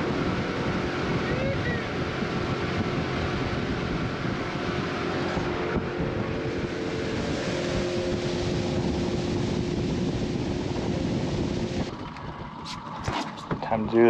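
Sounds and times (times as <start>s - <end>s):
outboard motor running: 0.0s - 14.0s
steady hum: 0.0s - 14.0s
water noise: 0.0s - 14.0s
wind: 0.0s - 14.0s.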